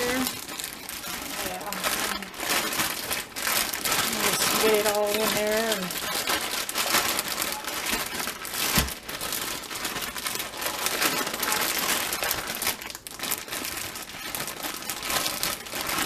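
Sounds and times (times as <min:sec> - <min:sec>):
plastic bag crinkling: 0:00.0 - 0:16.0.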